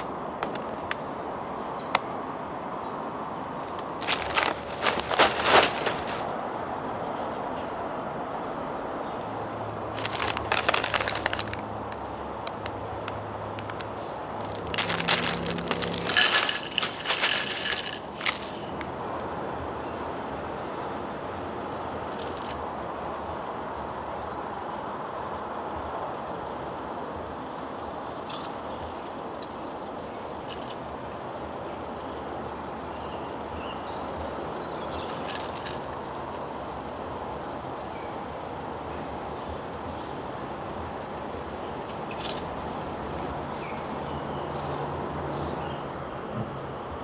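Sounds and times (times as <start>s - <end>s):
snack bags crinkling: 3.6s - 6.3s, 10.0s - 11.6s, 13.6s - 18.8s, 22.0s - 22.6s, 35.0s - 36.4s.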